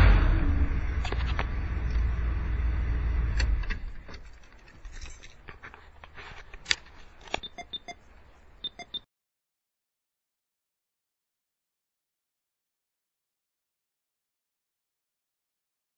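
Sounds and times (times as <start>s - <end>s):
engine running and shutting off: 0.0s - 5.2s
light metallic jingles: 3.8s - 6.0s.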